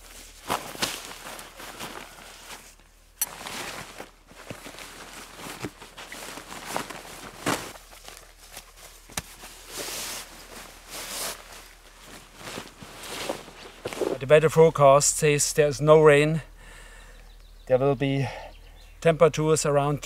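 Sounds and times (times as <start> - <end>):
tent fabric rustling: 0.0 - 14.4.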